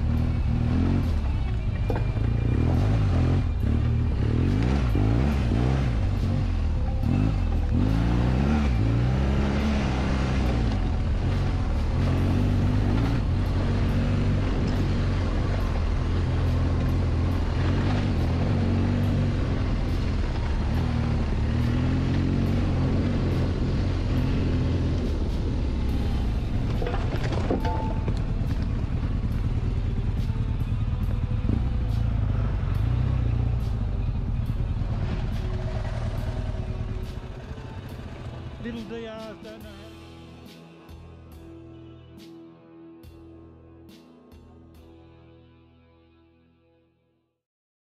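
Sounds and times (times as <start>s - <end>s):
motorcycle engine revving: 0.0s - 39.0s.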